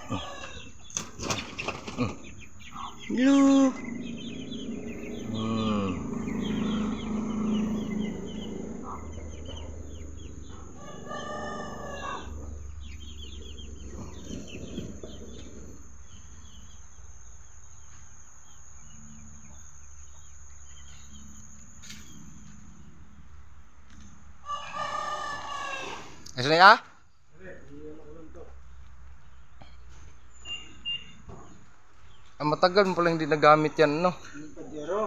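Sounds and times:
rooster crowing: 0.0s - 0.9s, 2.8s - 15.8s, 24.4s - 26.3s
chickens clucking: 0.0s - 35.0s.

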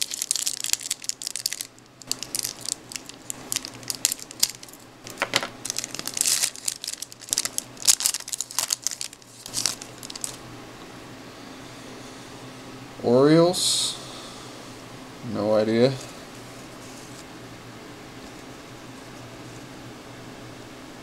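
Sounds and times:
foil wrapper crinkling and tearing: 0.0s - 10.4s.

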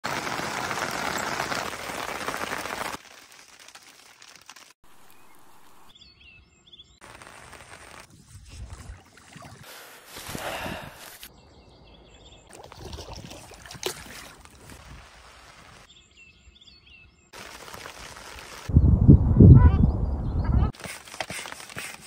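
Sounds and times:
birdsong: 4.9s - 7.0s, 10.4s - 13.3s, 15.8s - 17.4s, 18.8s - 20.7s.

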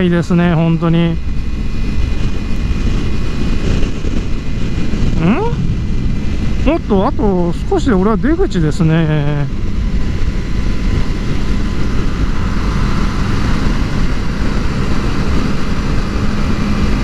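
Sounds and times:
motorcycle engine hum: 0.0s - 17.0s
wind rush: 0.0s - 17.0s.

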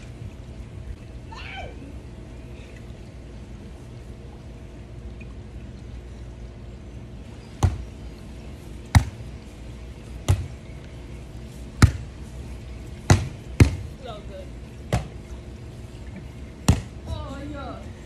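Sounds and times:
volleyball being hit: 7.6s - 7.9s, 8.9s - 9.2s, 10.2s - 10.6s, 11.8s - 12.1s, 13.1s - 13.9s, 14.9s - 15.2s, 16.7s - 17.0s.

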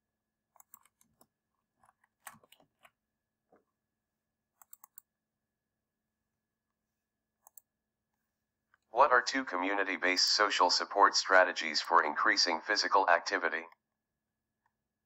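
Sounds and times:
computer mouse clicks: 0.6s - 2.9s, 4.6s - 5.1s, 7.4s - 7.7s.

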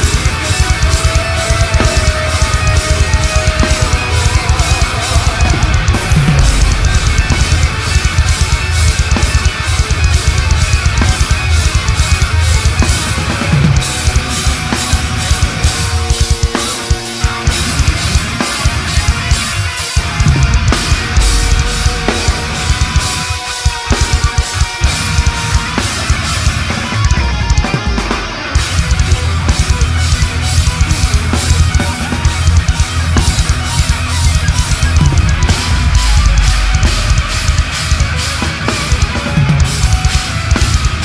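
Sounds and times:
distorted electric guitars: 0.0s - 41.0s
fast dense drumming: 0.0s - 41.0s
pounding bass drum: 0.0s - 41.0s.

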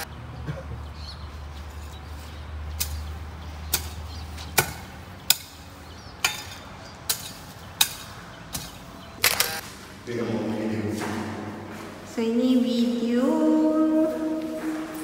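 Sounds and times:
hand tool chopping ground: 6.2s - 8.8s.

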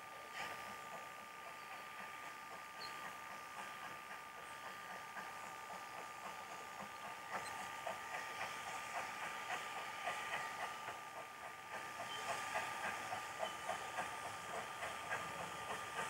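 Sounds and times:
steam locomotive exhaust beats: 0.0s - 16.0s.

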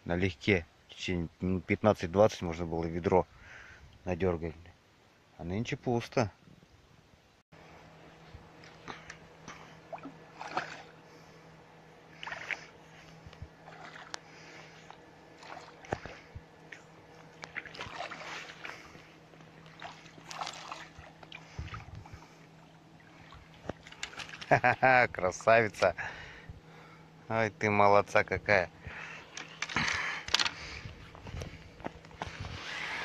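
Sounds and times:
fish splashing in water: 9.9s - 11.0s, 12.1s - 12.8s, 15.4s - 16.3s, 17.4s - 21.9s.

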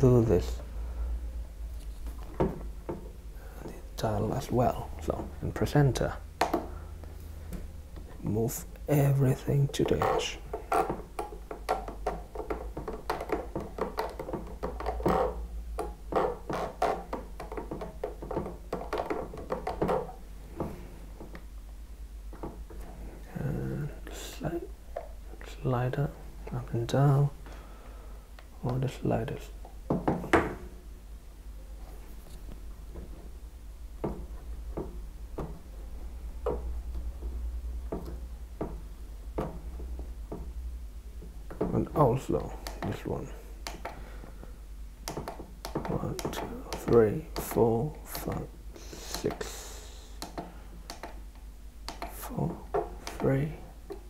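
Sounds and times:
faint low hum: 0.0s - 54.0s
plastic clicks taps and scraping: 45.0s - 48.3s, 50.2s - 54.0s.

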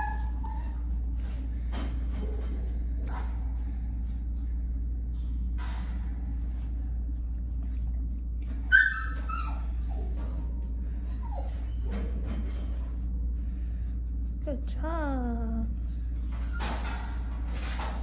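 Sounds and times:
dog whining and yelping: 0.0s - 1.4s, 8.5s - 12.2s, 15.8s - 18.0s.

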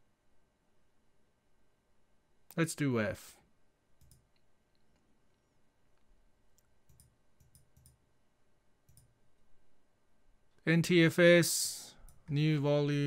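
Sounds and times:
computer mouse clicks: 4.0s - 4.5s, 6.5s - 8.0s, 8.9s - 9.1s.

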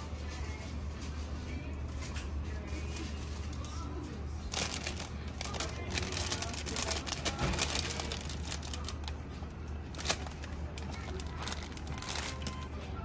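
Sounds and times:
plastic bags crinkling: 4.4s - 12.7s.

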